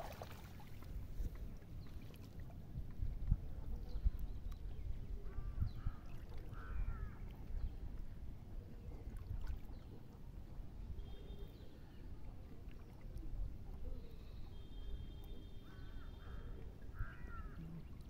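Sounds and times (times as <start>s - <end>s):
water sloshing and trickling: 0.0s - 3.5s, 5.9s - 14.3s.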